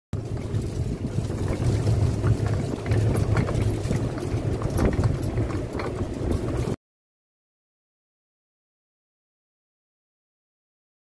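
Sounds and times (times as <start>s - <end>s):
road rumble while travelling: 0.2s - 6.8s
wind on microphone: 0.2s - 6.8s.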